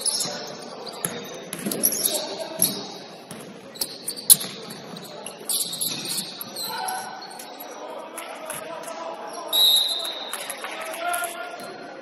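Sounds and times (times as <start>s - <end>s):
shoe squeaks on court: 0.0s - 7.7s.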